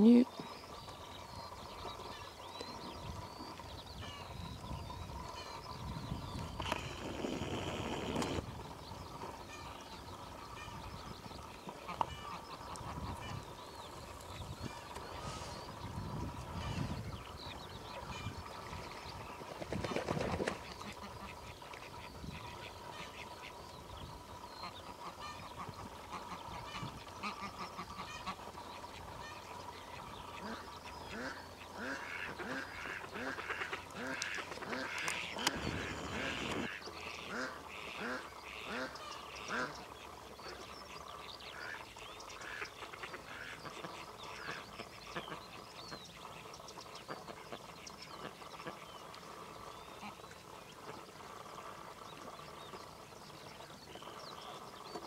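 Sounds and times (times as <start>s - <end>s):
geese calling: 24.6s - 39.8s.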